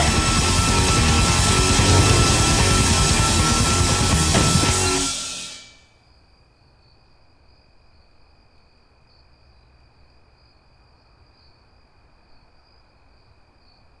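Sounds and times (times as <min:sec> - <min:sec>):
low rumble: 0:00.9 - 0:05.1.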